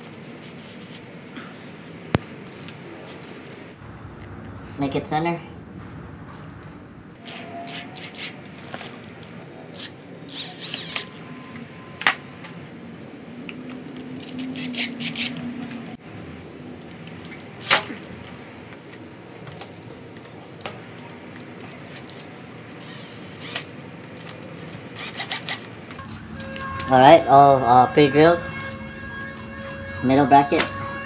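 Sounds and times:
cordless drill drilling metal: 7.2 - 8.3, 9.8 - 11.1, 14.2 - 15.3, 21.6 - 25.6
drill bit squeaking on metal: 7.2 - 8.4, 9.7 - 11.2, 14.2 - 15.4, 21.6 - 31.0.

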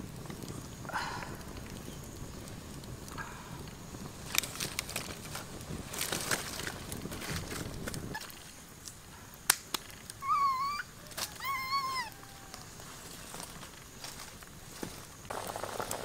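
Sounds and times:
wood fire cracks: 0.0 - 16.0
puppy whining: 10.2 - 12.8.

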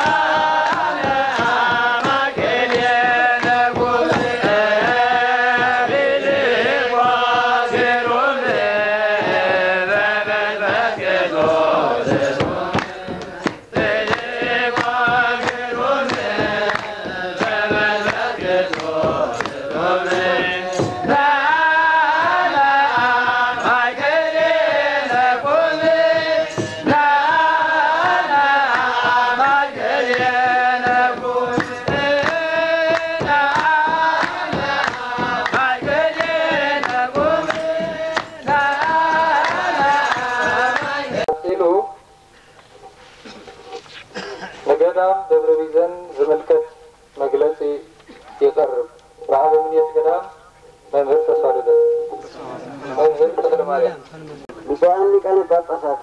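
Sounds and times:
hand claps: 0.0 - 41.3
clergy chanting together: 0.0 - 41.4.

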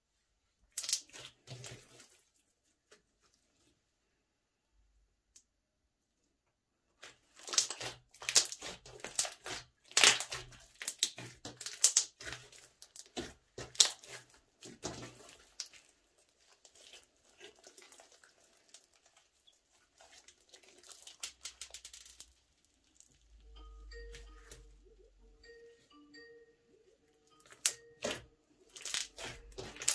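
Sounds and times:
slime squelching and popping: 0.7 - 2.2, 7.0 - 24.6, 27.4 - 29.9.

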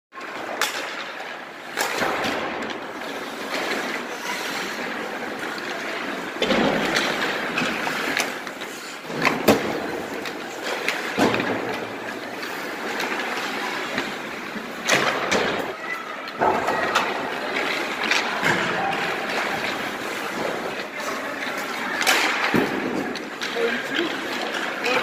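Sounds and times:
hockey sticks and pucks clacking: 0.2 - 25.0
skate blades scraping on ice: 2.8 - 15.8, 16.6 - 25.0.

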